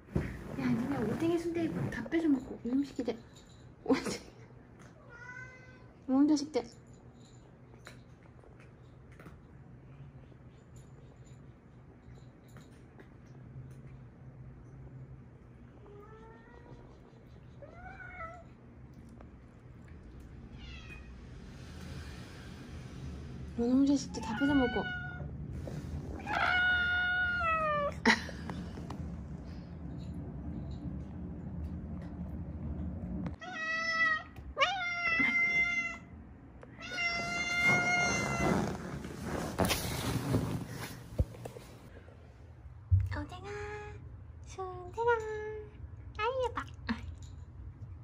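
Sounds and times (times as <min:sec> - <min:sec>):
cat meowing: 0:20.5 - 0:21.1, 0:36.8 - 0:38.5.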